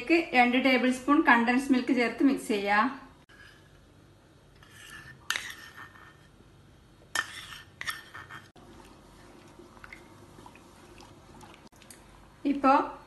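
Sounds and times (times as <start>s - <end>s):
wooden spoon stirring in pot: 3.3s - 6.4s, 7.2s - 12.2s.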